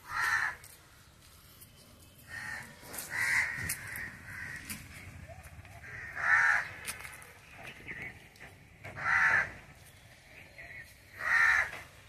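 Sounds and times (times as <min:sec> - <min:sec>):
crow cawing: 0:00.0 - 0:00.7, 0:02.3 - 0:05.1, 0:05.8 - 0:07.2, 0:08.8 - 0:09.8, 0:11.1 - 0:12.0.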